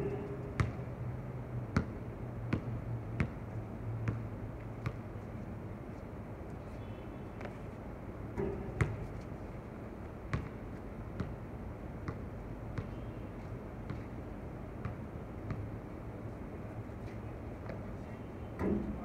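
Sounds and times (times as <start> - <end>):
basketball bouncing on hard court: 0.0 - 0.9, 1.8 - 3.4, 4.0 - 5.0, 8.4 - 9.1, 10.3 - 10.6, 12.8 - 13.1
steady low hum: 0.0 - 19.0.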